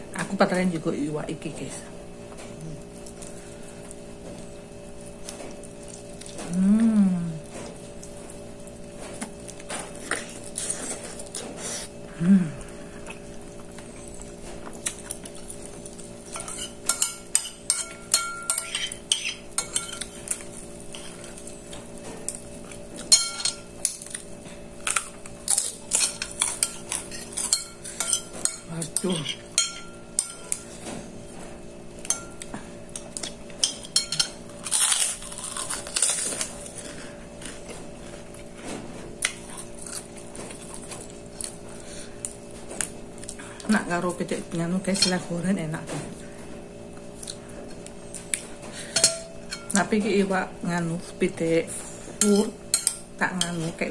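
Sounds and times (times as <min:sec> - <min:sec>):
steady low hum: 0:00.0 - 0:53.9
metal spoon scraping a plate: 0:16.3 - 0:21.3.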